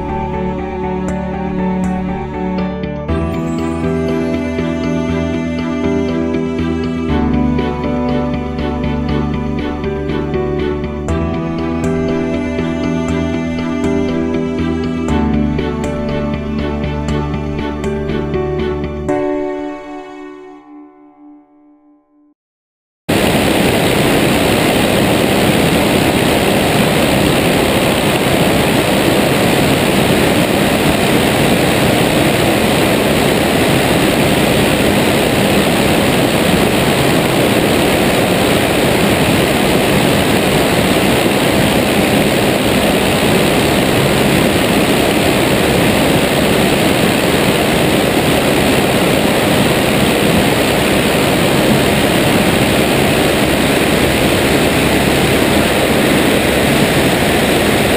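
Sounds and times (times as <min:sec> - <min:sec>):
propeller plane engine: 0:23.1 - 0:57.9
wind rush: 0:23.1 - 0:57.9.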